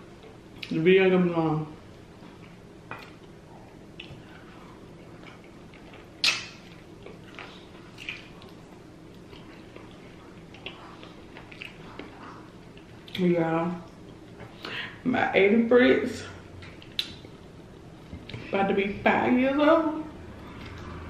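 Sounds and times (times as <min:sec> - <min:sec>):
wet chewing and lip smacking: 0:02.2 - 0:13.2, 0:16.6 - 0:18.5.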